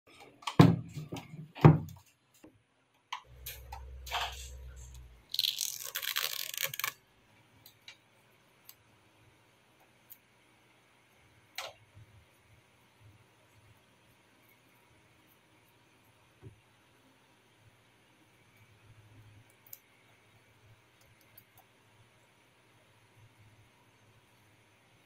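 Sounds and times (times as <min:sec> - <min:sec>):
low hum: 0:03.3 - 0:05.2.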